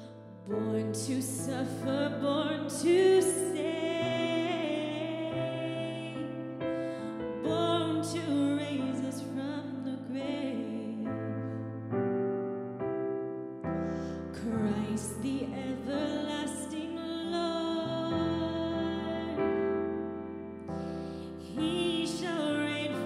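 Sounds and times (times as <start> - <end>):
sustained piano chords: 0.0 - 23.0
person singing: 14.4 - 19.9, 21.3 - 23.0.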